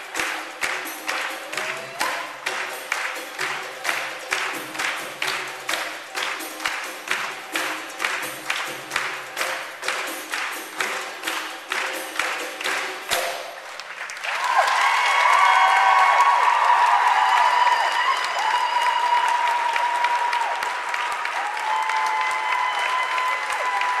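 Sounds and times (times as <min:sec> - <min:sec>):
high-pitched cheering: 0:00.0 - 0:02.9, 0:14.2 - 0:24.0
belly dance music with drums: 0:00.0 - 0:13.8
audience applause: 0:00.0 - 0:24.0.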